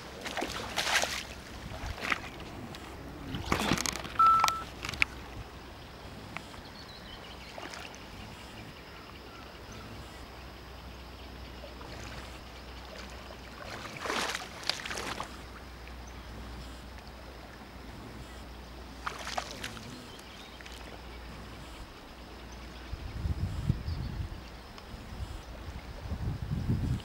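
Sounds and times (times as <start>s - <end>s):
rustling and water splashing: 0.0s - 9.3s, 11.5s - 22.8s
short high beep: 4.2s - 4.7s.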